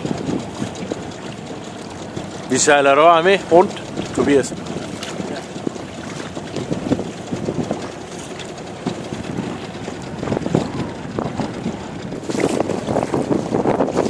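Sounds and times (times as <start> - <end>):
water noise: 0.0 - 14.0
wind buffeting microphone: 0.0 - 14.0.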